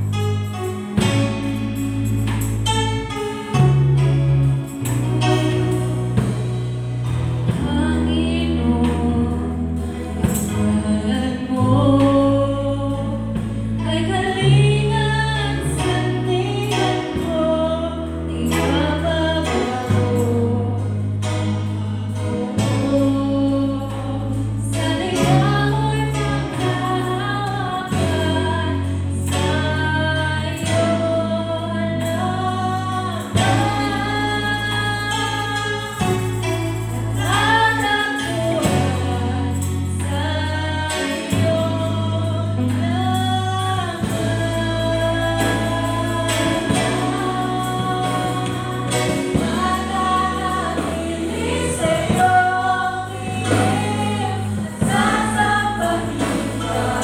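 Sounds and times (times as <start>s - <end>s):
electric guitar: 0.0s - 57.0s
low bass notes: 0.0s - 57.0s
group singing worship song: 21.5s - 57.0s.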